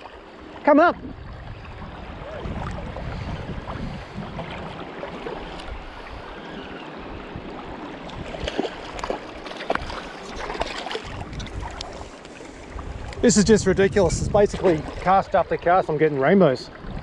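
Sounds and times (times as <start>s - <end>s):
river water running: 0.0s - 17.0s
water splashes and knocks: 1.0s - 5.7s, 8.0s - 13.3s, 14.1s - 17.0s.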